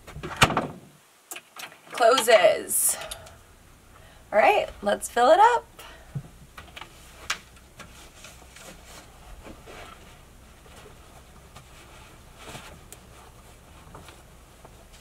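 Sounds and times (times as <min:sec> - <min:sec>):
canvas rustling: 0:06.9 - 0:15.0.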